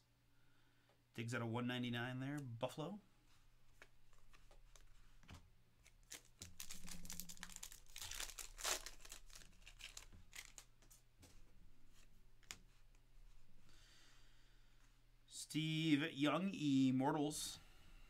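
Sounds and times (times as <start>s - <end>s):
wrapper tearing and crinkling: 5.8s - 10.7s.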